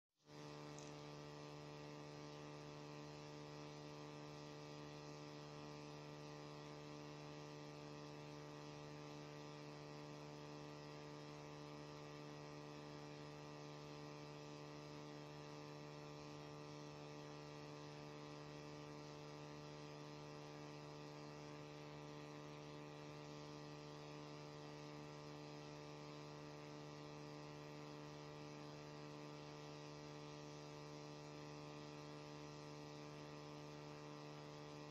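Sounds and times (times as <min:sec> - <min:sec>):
faint electrical hum: 0:00.3 - 0:12.2.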